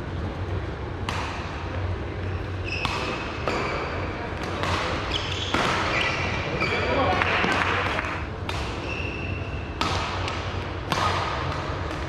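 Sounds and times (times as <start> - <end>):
steady low hum: 0.0 - 12.0
racket striking shuttlecock: 1.0 - 1.7, 2.7 - 6.1, 7.4 - 8.9, 9.8 - 12.0
shoes squeaking on court floor: 2.3 - 7.5, 8.8 - 9.7.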